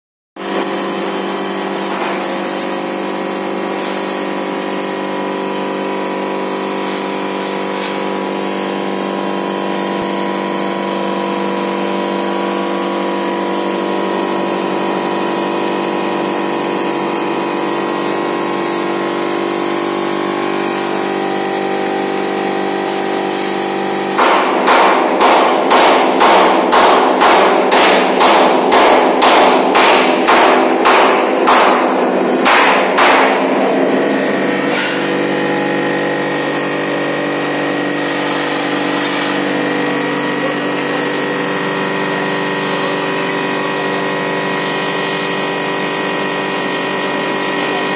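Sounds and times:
steel table top buzzing: 0:00.4 - 0:25.2, 0:27.1 - 0:47.9
vibrator motor humming: 0:00.4 - 0:47.9.

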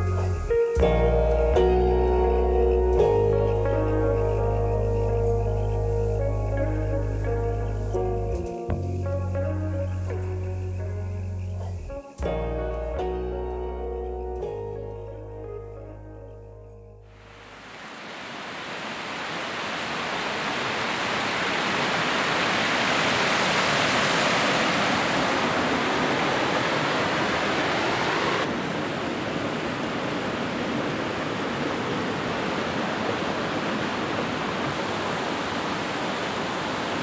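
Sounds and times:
flowing river water: 0:17.1 - 0:37.0.

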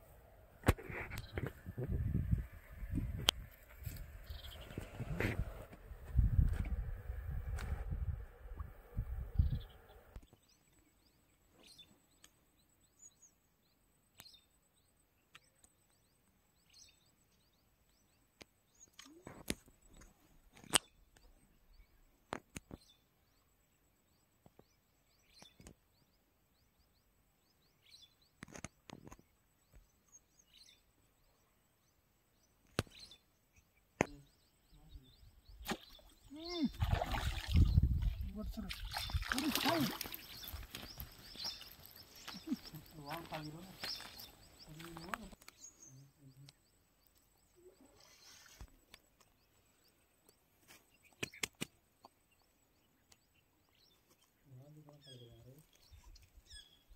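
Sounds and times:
bird chirps: 0:04.1 - 0:05.1, 0:19.9 - 0:56.9.

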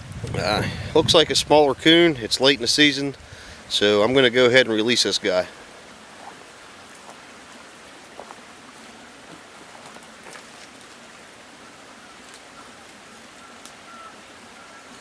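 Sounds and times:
faint outdoor hiss: 0:00.0 - 0:15.0
faint clicks: 0:12.2 - 0:13.9.

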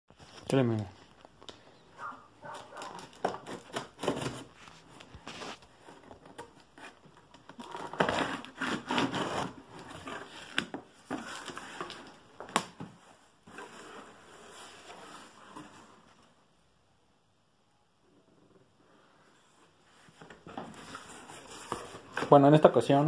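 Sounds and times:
cardboard rubbing and scraping: 0:02.5 - 0:05.6, 0:07.6 - 0:11.8, 0:20.4 - 0:22.4.

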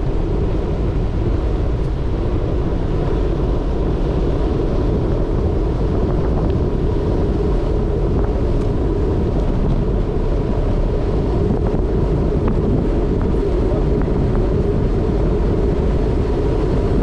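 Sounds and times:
tyres rolling on gravelly road: 0:00.0 - 0:17.0
wind buffeting microphone: 0:00.0 - 0:17.0.

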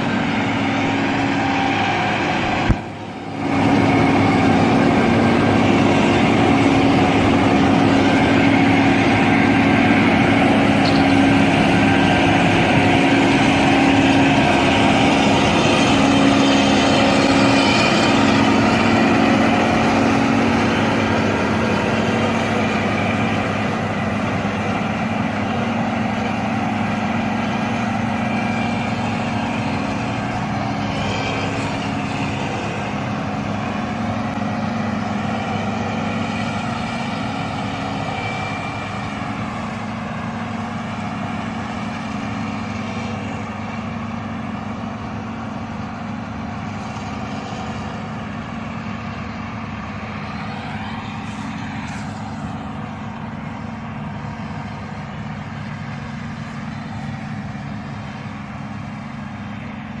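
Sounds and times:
diesel engine running: 0:00.0 - 1:00.0.

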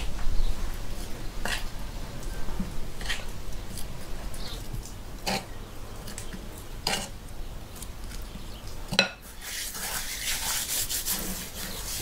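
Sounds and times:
hands rubbing spice on meat: 0:09.3 - 0:12.0.

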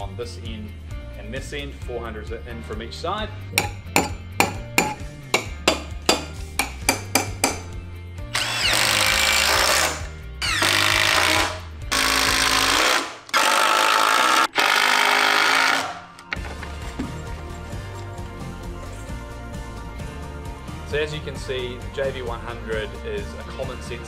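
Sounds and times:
background music with beat: 0:00.0 - 0:08.4, 0:16.2 - 0:24.0
impact driver driving screws: 0:08.3 - 0:16.0.

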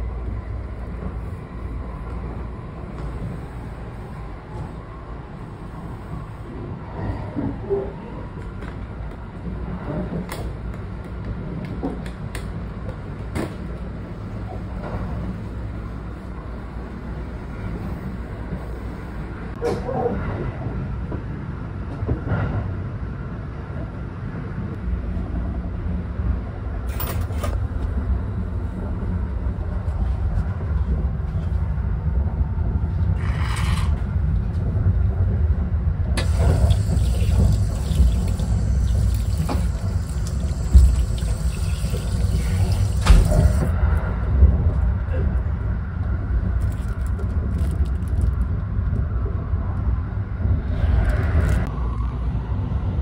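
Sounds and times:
train running rumble: 0:00.0 - 0:53.0
water running from tap: 0:36.2 - 0:43.6.

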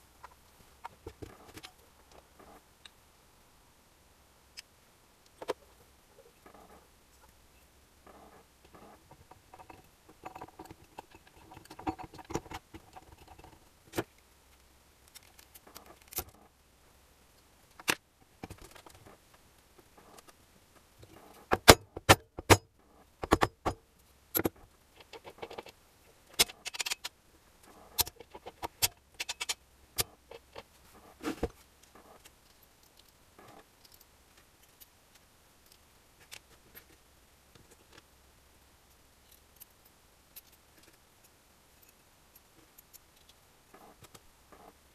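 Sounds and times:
metallic clinks and knocks: 0:08.8 - 0:13.6.

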